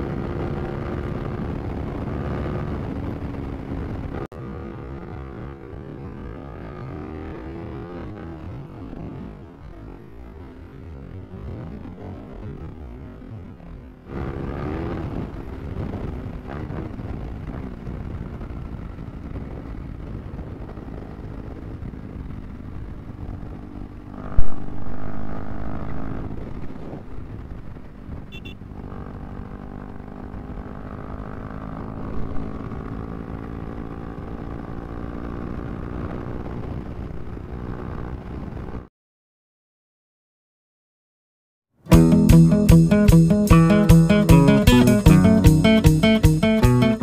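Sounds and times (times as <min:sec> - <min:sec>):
motorcycle engine running: 0:14.0 - 0:36.4, 0:41.9 - 0:47.0
sharp thump: 0:24.4 - 0:24.7
brief high beep: 0:28.3 - 0:28.6.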